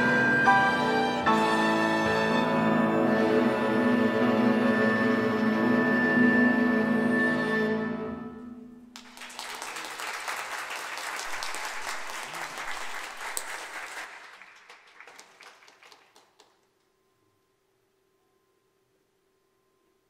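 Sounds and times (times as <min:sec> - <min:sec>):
strings and flute chord: 0:00.0 - 0:08.9
audience clapping: 0:08.9 - 0:16.8.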